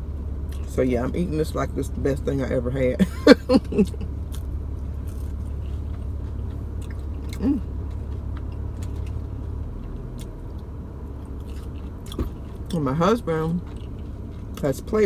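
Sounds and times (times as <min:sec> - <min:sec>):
car cabin hum: 0:00.0 - 0:15.0
person chewing: 0:03.8 - 0:12.8, 0:13.6 - 0:14.8.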